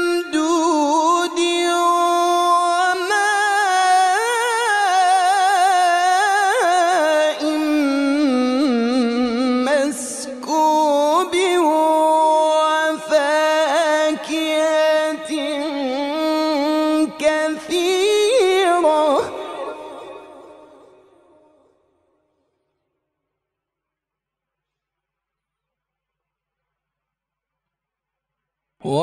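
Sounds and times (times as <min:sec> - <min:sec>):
man reciting melodically: 0:00.0 - 0:21.1.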